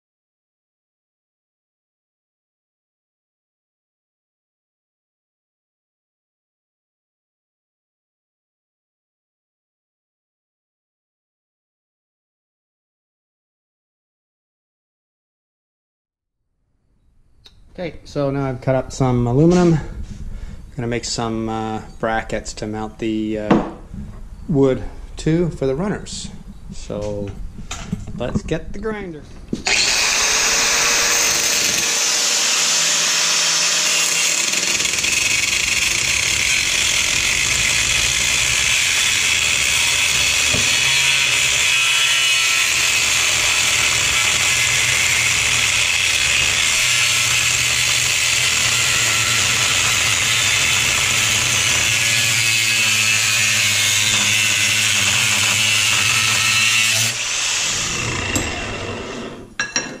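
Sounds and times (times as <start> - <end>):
angle grinder grinding metal: 29.6 - 59.8.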